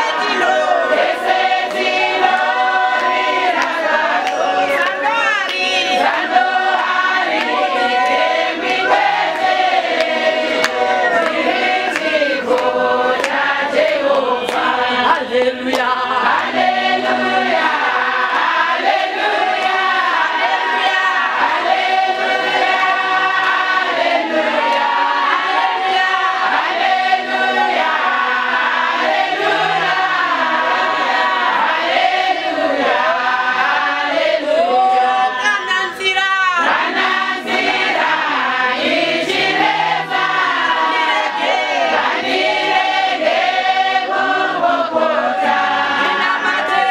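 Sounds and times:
women singing gospel together: 0:00.0 - 0:46.9
woman leading into a microphone: 0:34.8 - 0:36.7.

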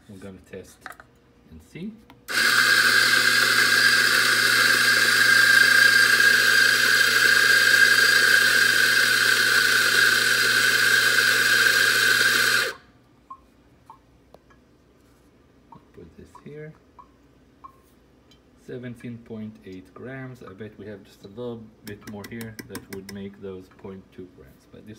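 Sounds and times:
coffee grinder whining: 0:02.3 - 0:12.8.

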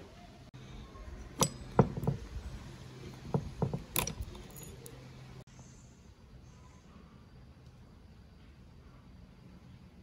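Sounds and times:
pliers clicking on metal: 0:03.9 - 0:05.0.

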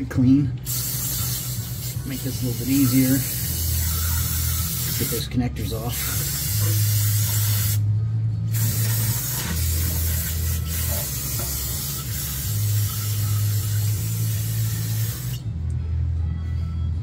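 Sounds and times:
aerosol spray hissing: 0:00.6 - 0:05.2, 0:05.9 - 0:07.8, 0:08.5 - 0:15.4.

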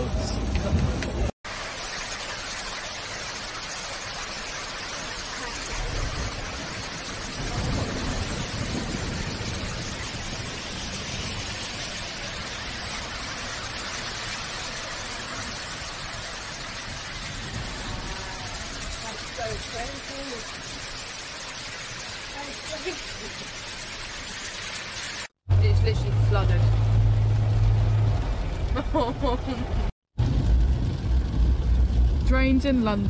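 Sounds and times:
torrential rain pouring: 0:00.8 - 0:33.0
low rumbles: 0:25.5 - 0:33.0.

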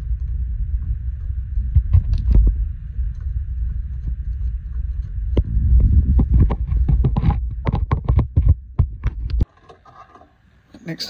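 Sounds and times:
low steady rumble: 0:00.0 - 0:09.5
sharp clicks and knocks: 0:06.1 - 0:09.8.

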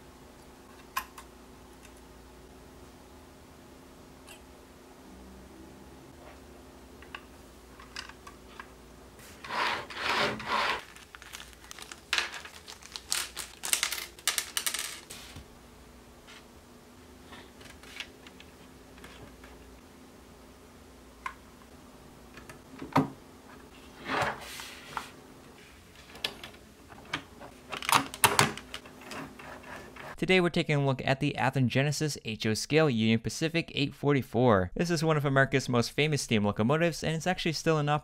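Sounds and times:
small parts clicking and tapping: 0:11.2 - 0:15.0.

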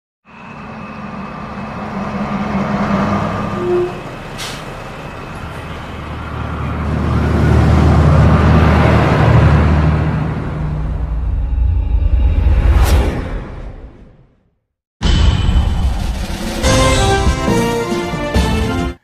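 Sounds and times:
bus engine running: 0:00.2 - 0:11.5
air brakes hissing: 0:03.6 - 0:05.0.

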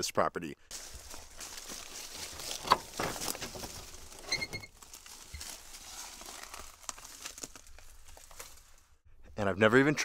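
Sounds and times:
short high squeak: 0:04.3 - 0:04.7.

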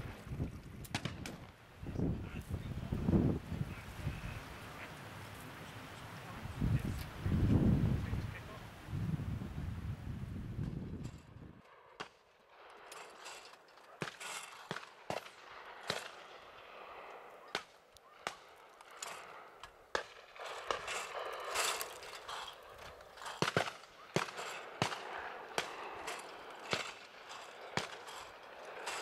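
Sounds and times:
distant shotgun shots: 0:13.9 - 0:21.6, 0:23.2 - 0:28.4.

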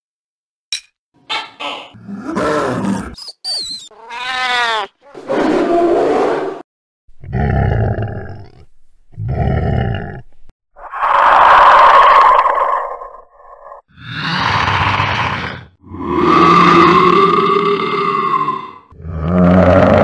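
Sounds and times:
growl: 0:02.0 - 0:03.2, 0:07.2 - 0:20.0
harsh creature roar: 0:02.0 - 0:03.2, 0:04.7 - 0:06.6, 0:09.2 - 0:10.2, 0:10.8 - 0:20.0
cat meow: 0:03.9 - 0:05.0.

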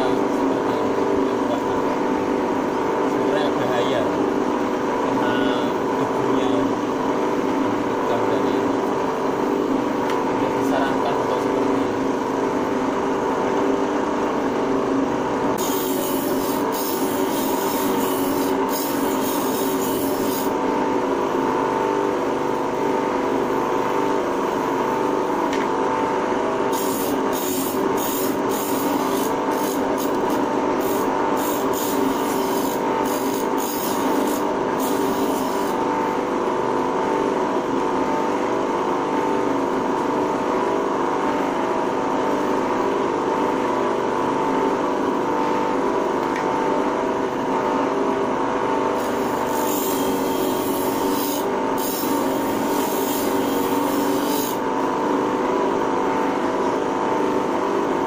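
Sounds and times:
blade hissing on grinding wheel: 0:15.6 - 0:20.6, 0:26.7 - 0:35.8, 0:49.0 - 0:54.6
electric grinder humming: 0:15.6 - 0:20.6, 0:26.7 - 0:35.8, 0:49.0 - 0:54.7.

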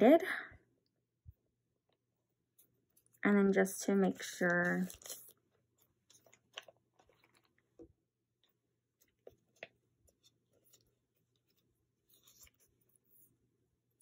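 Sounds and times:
plastic sleeves crinkling: 0:04.1 - 0:12.8.

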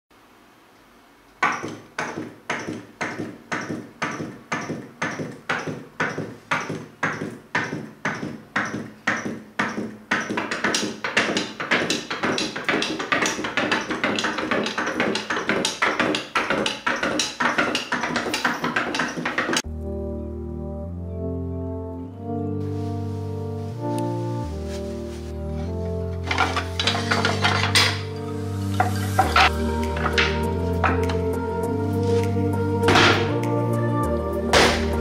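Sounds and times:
rhythmic taps with ringing tone: 0:01.4 - 0:19.6.

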